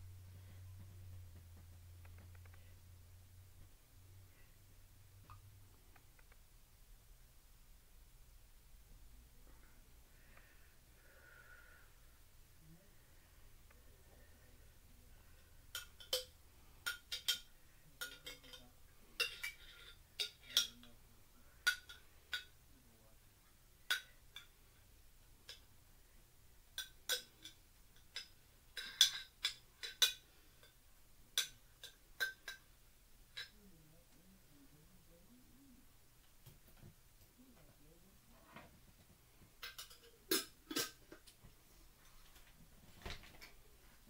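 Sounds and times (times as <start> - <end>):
metal spoon clinking on a jar: 15.7 - 20.9, 39.6 - 41.0.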